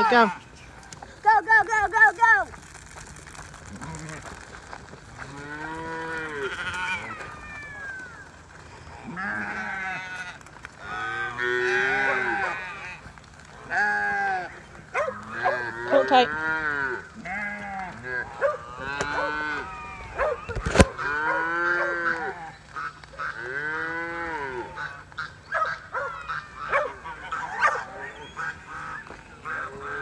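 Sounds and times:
cattle mooing: 0:05.2 - 0:07.4, 0:08.9 - 0:13.0, 0:15.2 - 0:20.0, 0:20.9 - 0:22.5, 0:23.2 - 0:24.9.

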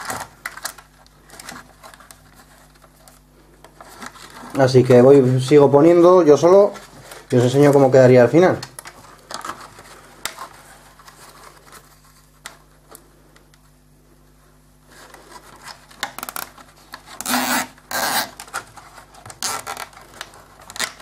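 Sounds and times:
plastic rubbing and clicking: 0:15.0 - 0:21.0
zip tie rasps: 0:17.1 - 0:18.4, 0:19.4 - 0:20.0.

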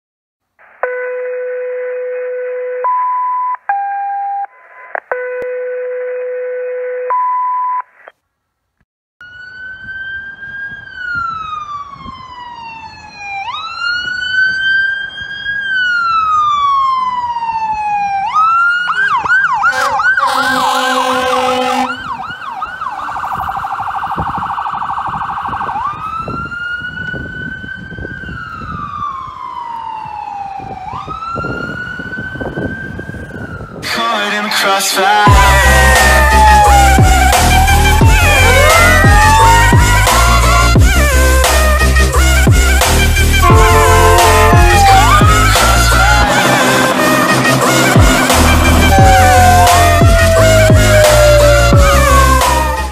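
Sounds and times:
fire engine siren: 0:00.8 - 0:07.2, 0:09.2 - 0:52.9
air horn blast: 0:19.6 - 0:22.2, 0:40.5 - 0:52.2
electronic tones: 0:43.4 - 0:50.6.

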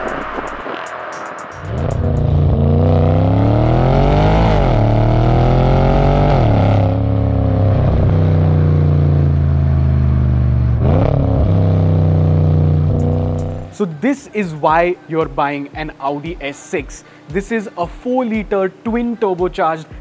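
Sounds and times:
car exhaust under acceleration: 0:00.0 - 0:13.7
engine rev blip: 0:00.0 - 0:13.7.

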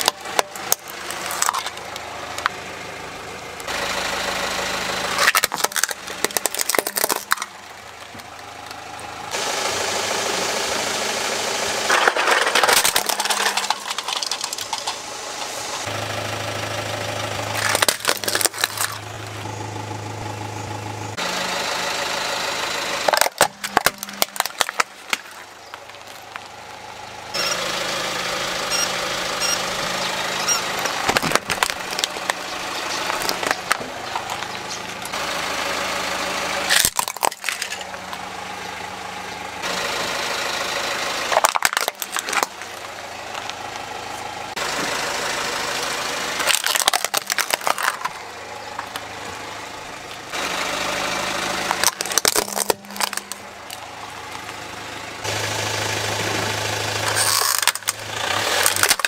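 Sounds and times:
tyre crushing plastic toys: 0:00.0 - 0:02.5, 0:05.2 - 0:08.4, 0:11.9 - 0:15.6, 0:17.5 - 0:19.1, 0:23.1 - 0:26.5, 0:30.5 - 0:34.5, 0:36.7 - 0:38.2, 0:41.3 - 0:42.8, 0:46.4 - 0:49.1, 0:51.5 - 0:54.6, 0:57.0 - 0:59.0
car engine idling: 0:00.0 - 0:59.0.

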